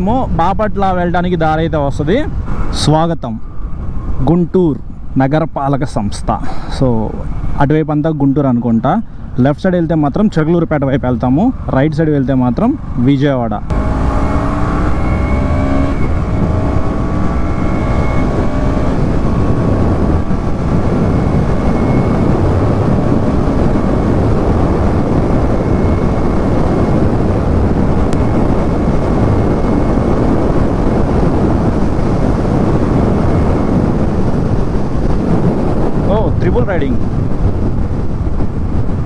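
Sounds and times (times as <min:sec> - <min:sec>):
wind rush on microphone: 0:00.0 - 0:39.0
motorcycle engine: 0:13.7 - 0:39.0.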